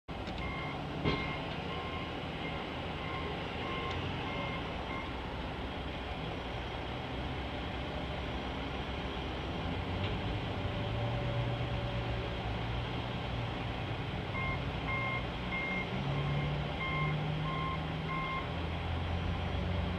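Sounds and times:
heavy vehicle engines running: 0.1 - 19.9
vehicle backup alarm beeping: 0.4 - 5.2, 14.3 - 18.6.

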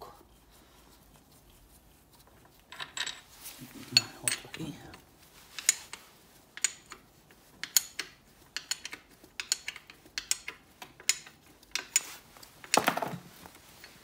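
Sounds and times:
wrench metallic clicks: 7.6 - 12.8.

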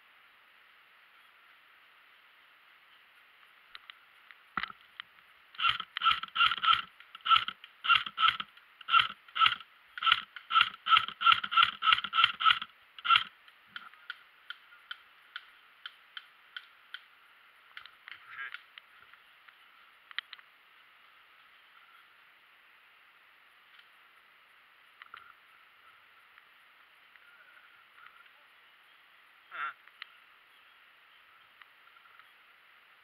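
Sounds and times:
faint regular clicks: 3.4 - 22.0, 23.6 - 24.2, 24.9 - 25.4, 29.8 - 30.2, 31.5 - 32.4.

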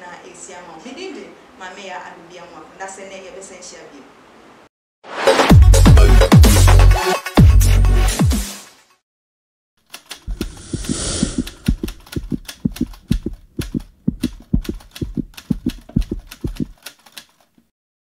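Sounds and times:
rapid sharp clicks: 9.8 - 17.6
hissing whoosh: 10.3 - 11.7.

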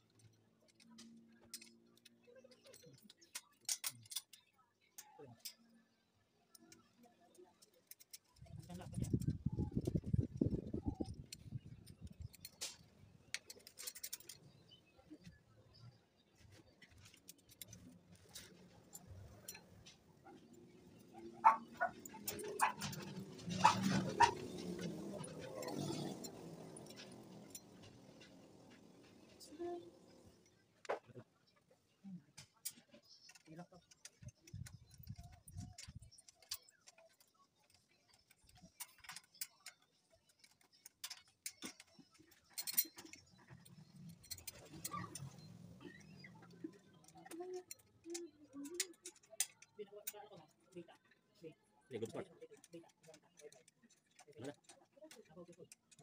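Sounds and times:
faint metal clicks and taps: 0.0 - 23.8, 24.5 - 51.2, 52.0 - 56.0
dog barking: 21.4 - 22.0, 22.6 - 22.9, 23.6 - 24.4.

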